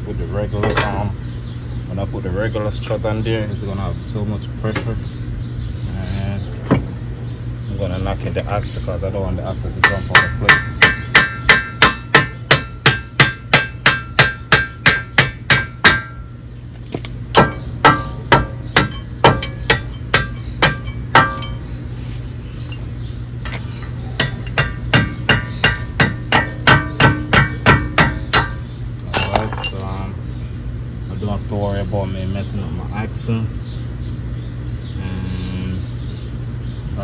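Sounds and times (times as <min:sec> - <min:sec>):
hammer blows on metal: 0:24.2 - 0:29.8.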